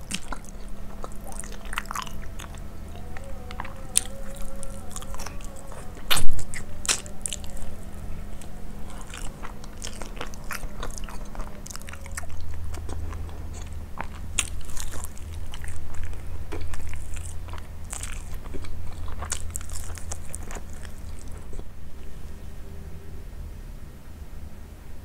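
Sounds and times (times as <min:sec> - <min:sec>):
sharp wet clicks: 0:00.0 - 0:21.6
chewing with crisp crunches: 0:00.0 - 0:22.5.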